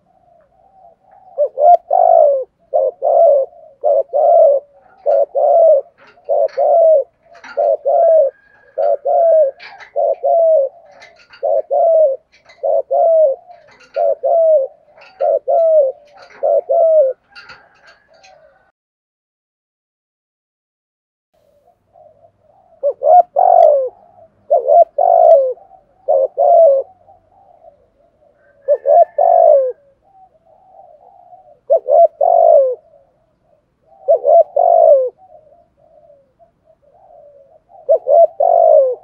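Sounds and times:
dove cooing: 0.0 - 18.7, 21.5 - 39.0.

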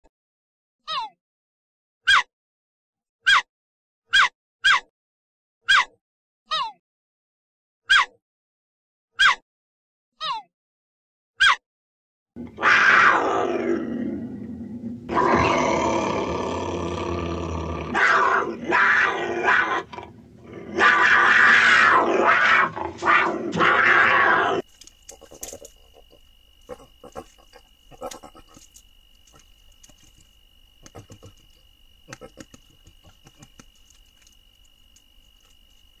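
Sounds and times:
cougar calling: 12.4 - 34.4
peccary grunts and clicks: 24.4 - 34.4.

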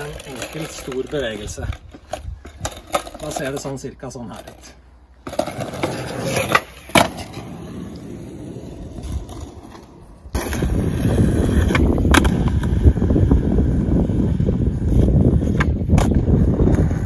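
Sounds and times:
skateboard clacking on ground: 0.0 - 12.8
skateboard wheels rolling on asphalt: 0.0 - 17.0.

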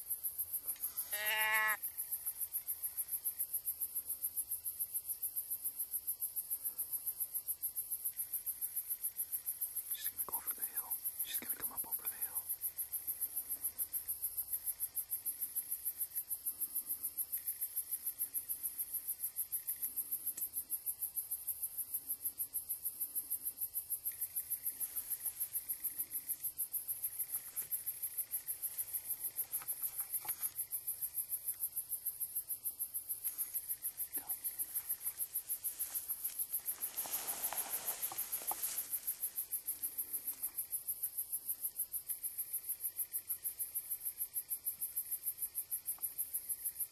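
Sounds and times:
crickets chirping: 0.0 - 46.9
soft rustling hiss: 24.0 - 32.0, 32.7 - 41.4.

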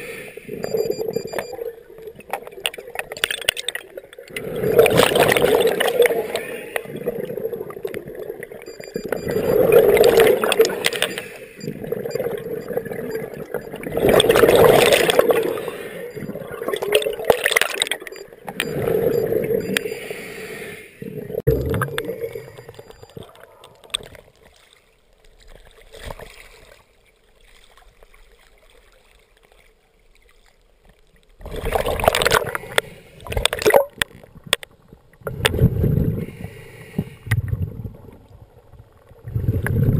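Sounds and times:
water bubbling and sloshing: 0.0 - 20.2, 20.9 - 39.9
diver's exhaled bubbles: 4.3 - 19.8, 21.1 - 23.4, 39.2 - 39.9.

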